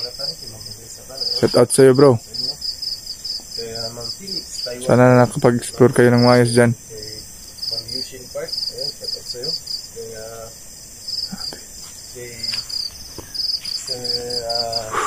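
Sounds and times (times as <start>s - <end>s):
crickets chirping: 0.0s - 15.0s
faint low murmurs: 13.8s - 15.0s.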